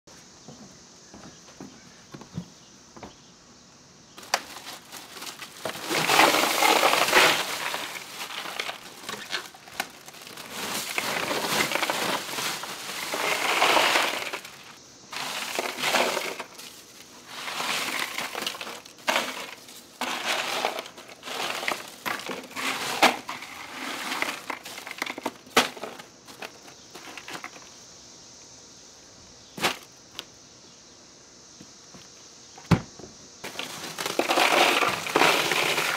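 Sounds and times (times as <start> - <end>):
ice crunching and clinking: 4.2 - 27.5, 33.4 - 35.9.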